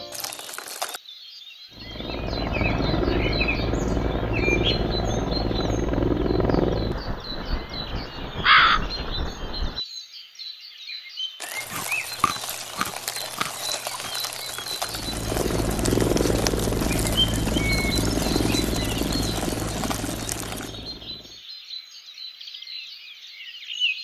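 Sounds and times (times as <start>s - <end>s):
loud low rushing noise: 1.8s - 9.8s
small birds chirping: 1.8s - 9.8s, 11.4s - 21.4s
crow cawing: 8.4s - 8.8s.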